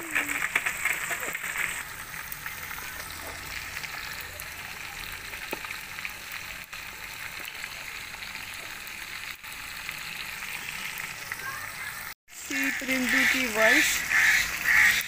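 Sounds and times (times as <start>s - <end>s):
oil crackling pops: 0.0s - 7.9s
fish sizzling in hot oil: 0.0s - 15.0s.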